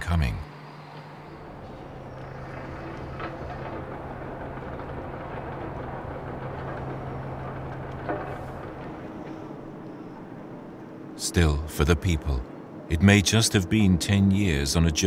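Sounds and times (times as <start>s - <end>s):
heavy engine running: 0.0s - 12.4s.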